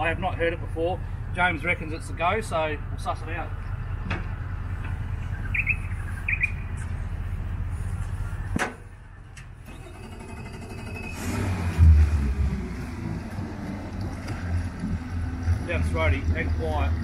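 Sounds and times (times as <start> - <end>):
steady low rumble: 0.0 - 9.6, 11.9 - 17.0
outboard motor starting and idling: 9.6 - 12.8.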